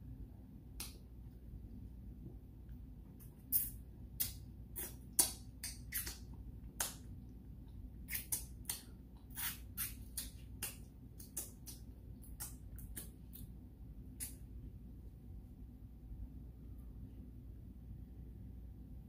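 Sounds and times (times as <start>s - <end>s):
finger sucking: 3.4s - 7.0s, 8.0s - 13.5s
wet lip smacks: 3.5s - 7.0s.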